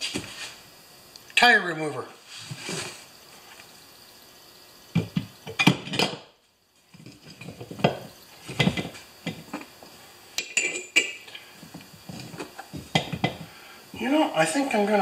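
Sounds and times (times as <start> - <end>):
metal clanks and knocks: 7.0 - 9.6, 12.1 - 13.5.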